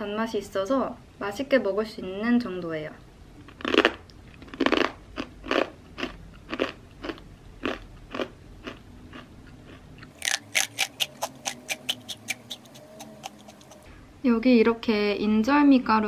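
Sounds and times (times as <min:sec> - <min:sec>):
chips crunching in mouth: 0:03.5 - 0:13.8.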